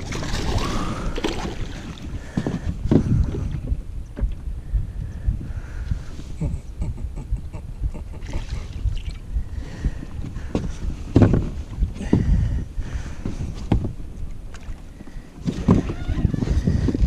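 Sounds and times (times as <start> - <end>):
wind rumbling on microphone: 0.0 - 17.0.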